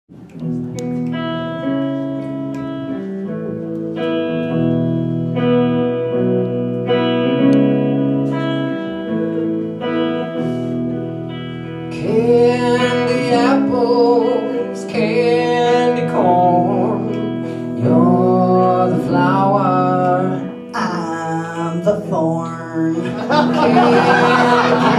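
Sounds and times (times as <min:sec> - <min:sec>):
live rock band playing: 0:00.1 - 0:22.2, 0:22.8 - 0:24.9
person singing: 0:11.9 - 0:24.9.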